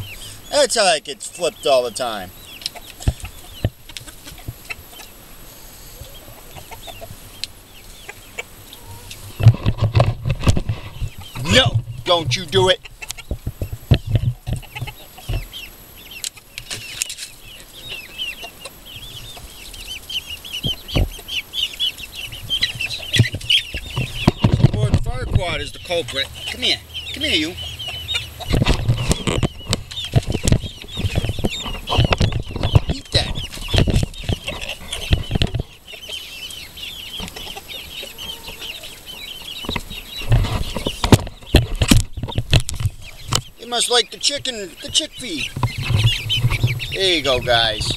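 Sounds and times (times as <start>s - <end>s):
chickens clucking: 0.0s - 47.9s
chicks peeping: 0.0s - 47.9s
low thumps: 22.5s - 25.9s
heavy bumps and rustling: 22.5s - 26.2s.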